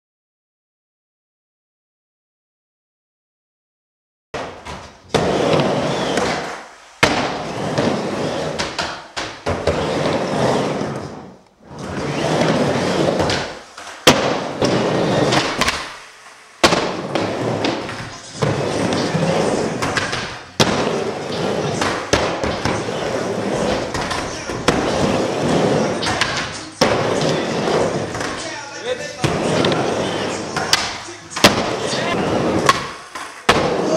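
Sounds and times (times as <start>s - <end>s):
skateboard wheels rolling on ramp: 4.4s - 33.9s
skateboard clacking on ramp: 13.2s - 16.0s, 29.2s - 33.9s.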